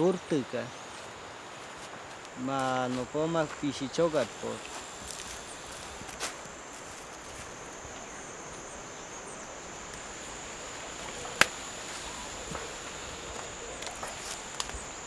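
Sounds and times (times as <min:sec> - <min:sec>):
insects buzzing: 0:00.0 - 0:15.0
stems cracking: 0:11.0 - 0:12.7, 0:13.4 - 0:14.8
leaf snapping off: 0:11.2 - 0:11.6.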